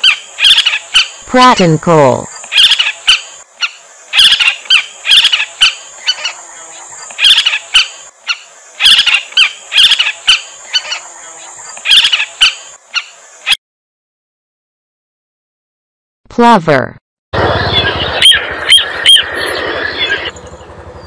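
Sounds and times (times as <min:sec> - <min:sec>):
bird chattering calls: 0:00.0 - 0:13.6, 0:17.5 - 0:20.8
steady high hiss: 0:00.0 - 0:13.6.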